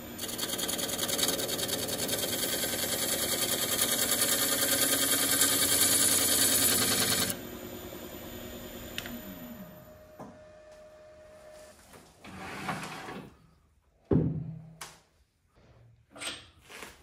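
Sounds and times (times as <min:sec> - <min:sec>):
lathe motor humming: 0:00.0 - 0:07.4
lathe tool scraping wood: 0:00.0 - 0:07.4
click: 0:09.0 - 0:09.2.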